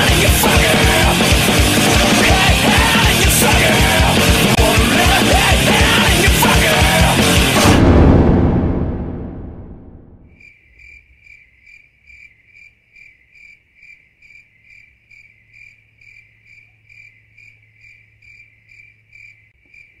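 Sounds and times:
heavy metal music: 0.0s - 10.2s
insect chirping: 10.3s - 20.0s.

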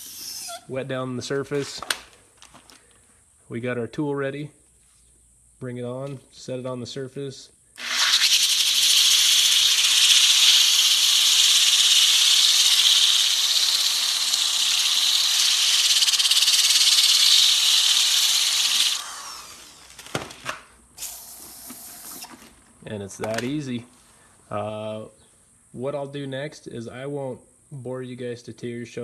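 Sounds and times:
orbital sander whirring: 7.8s - 20.4s.

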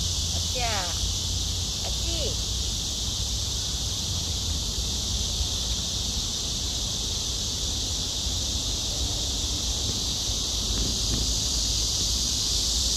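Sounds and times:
high-pitched insect chorus: 0.0s - 12.9s.

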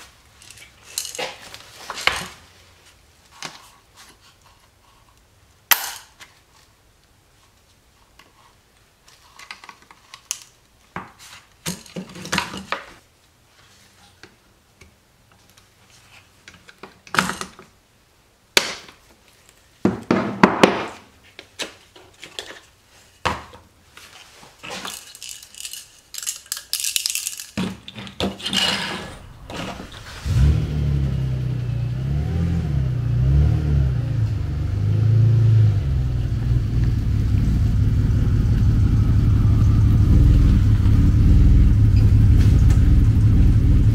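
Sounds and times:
car engine running: 29.1s - 35.0s, 35.7s - 43.9s.

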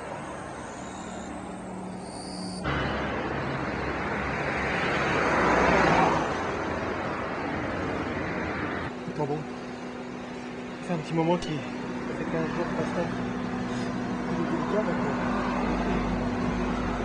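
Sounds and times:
road vehicle passing by: 0.0s - 9.0s, 11.7s - 17.0s
steady low hum: 6.3s - 17.0s.

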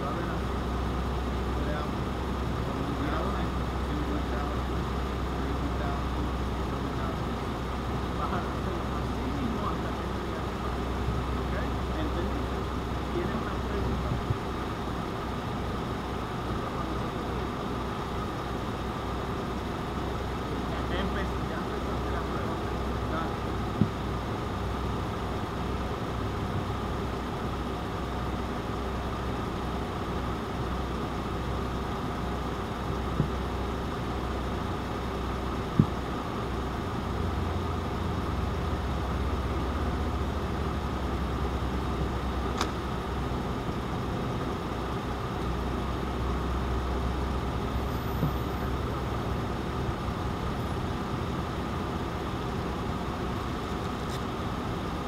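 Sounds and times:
vehicle engine idling: 0.0s - 55.0s
brief clicks: 42.6s - 42.8s.

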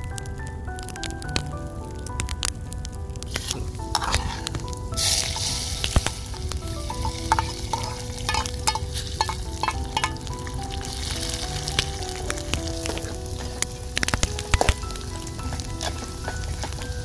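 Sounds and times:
onions sizzling in hot oil: 3.2s - 17.0s
spoon scraping a metal plate: 4.0s - 4.5s.

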